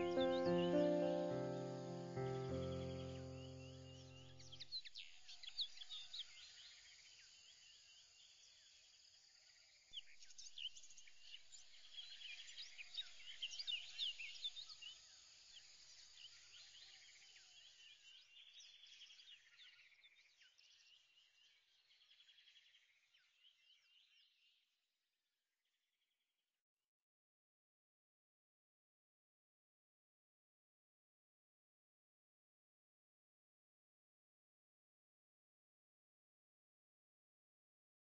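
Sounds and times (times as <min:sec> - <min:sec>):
birds chirping: 0:00.0 - 0:04.6.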